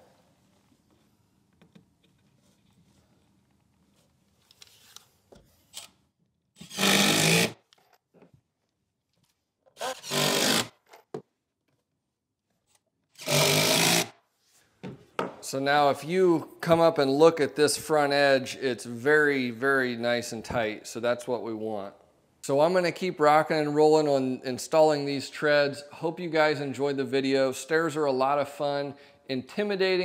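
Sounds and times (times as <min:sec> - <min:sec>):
cordless drill driving screws: 0:06.6 - 0:07.6, 0:09.8 - 0:10.8, 0:13.2 - 0:14.1.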